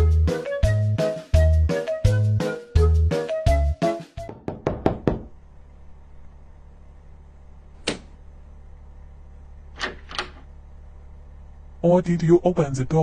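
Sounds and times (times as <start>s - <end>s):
paws knocking on wooden door: 4.2s - 5.3s
steady low hum: 5.1s - 13.0s.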